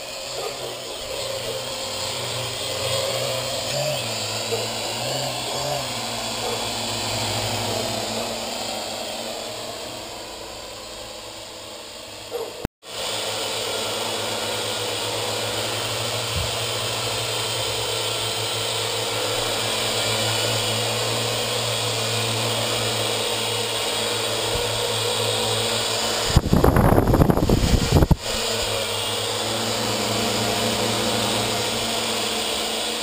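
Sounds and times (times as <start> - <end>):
quadcopter rotors buzzing: 0.0 - 33.0.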